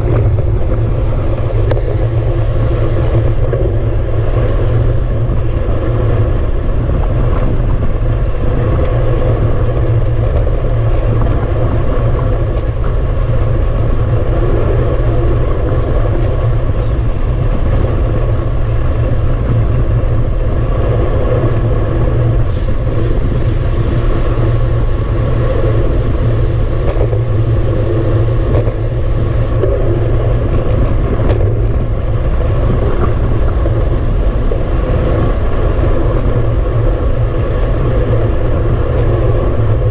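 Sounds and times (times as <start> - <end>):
bright hiss: 0.0 - 3.5, 22.5 - 29.6
bicycle tyre noise on asphalt: 0.0 - 39.9
wind buffeting microphone: 0.0 - 39.9.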